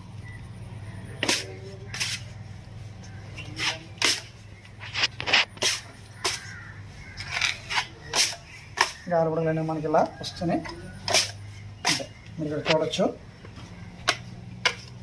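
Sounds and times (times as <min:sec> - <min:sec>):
steady low hum: 0:00.0 - 0:07.4.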